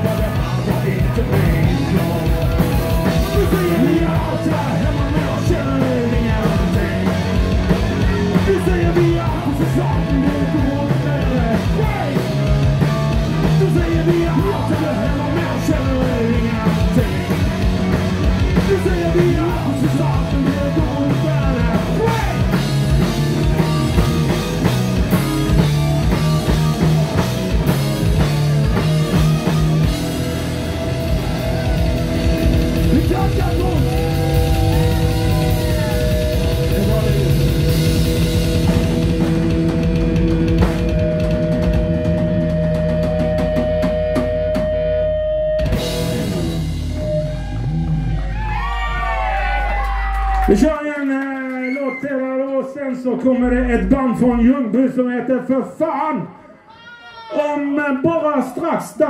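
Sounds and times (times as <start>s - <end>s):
man singing: 0.0s - 12.6s, 13.2s - 22.7s, 32.4s - 38.3s
distorted electric guitars: 0.0s - 50.7s, 53.2s - 54.6s
drum kit: 0.0s - 50.7s
bass guitar: 0.0s - 50.8s, 53.1s - 55.0s.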